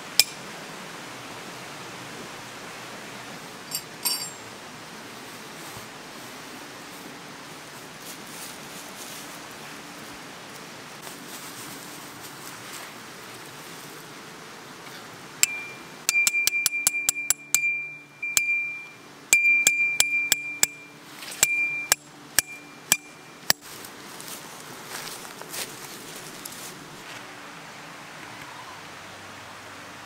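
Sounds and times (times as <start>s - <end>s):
metal tent stake being struck: 0.2s - 0.4s, 15.4s - 18.8s, 19.4s - 23.7s
rustling in dry grass: 4.9s - 15.1s, 20.9s - 21.5s, 22.7s - 27.5s.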